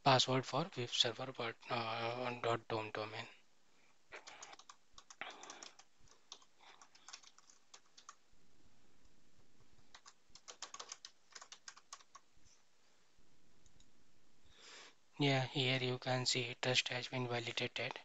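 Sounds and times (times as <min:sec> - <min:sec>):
faint keyboard typing: 0:04.1 - 0:08.2, 0:09.0 - 0:12.6, 0:13.6 - 0:14.0.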